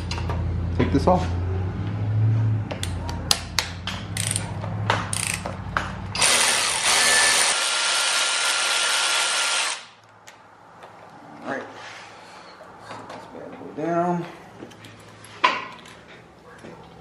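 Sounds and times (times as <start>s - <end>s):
electric ratchet running: 6.2s - 10.0s.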